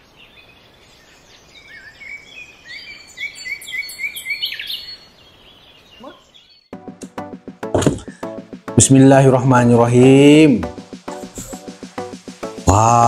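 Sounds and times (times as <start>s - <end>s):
birds singing: 0.0s - 6.8s.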